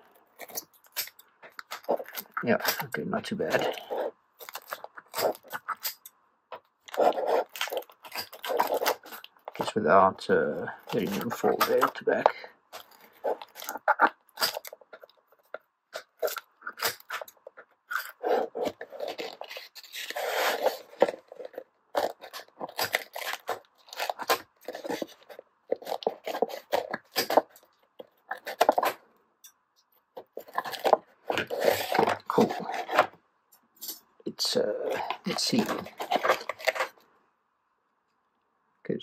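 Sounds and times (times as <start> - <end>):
cardboard scraping and crunching: 6.9 - 9.7, 10.7 - 15.1, 18.0 - 27.6, 30.3 - 33.2, 34.5 - 37.0.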